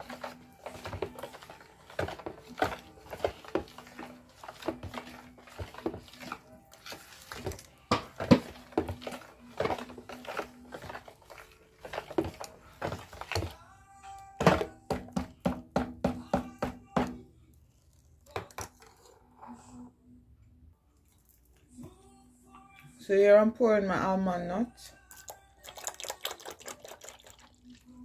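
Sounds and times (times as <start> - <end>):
spoon scraping a bowl: 0.0 - 13.6, 18.7 - 19.9.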